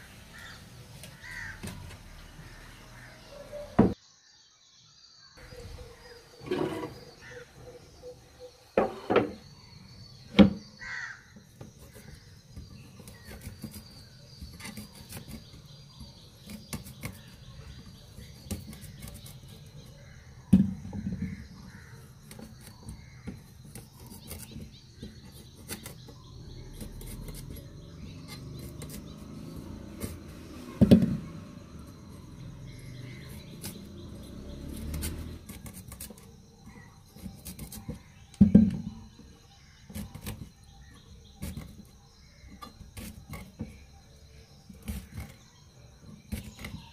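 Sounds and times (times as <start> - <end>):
crows cawing: 0.3 - 1.8, 7.2 - 7.5, 10.8 - 11.4
fruit scraping on metal blade: 6.3 - 7.4, 10.2 - 20.2, 20.9 - 38.8, 39.6 - 43.9, 44.6 - 46.9.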